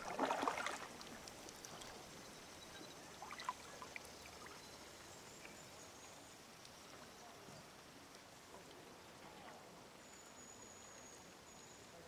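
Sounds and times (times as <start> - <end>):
river water lapping: 0.0 - 2.1, 3.1 - 4.6
small water drips: 0.0 - 7.1.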